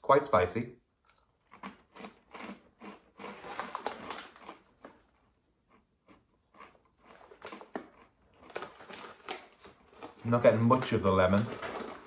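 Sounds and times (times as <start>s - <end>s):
crisps crunching while chewed: 1.1s - 12.0s
crisp packet rustling: 2.8s - 5.0s, 7.0s - 12.0s.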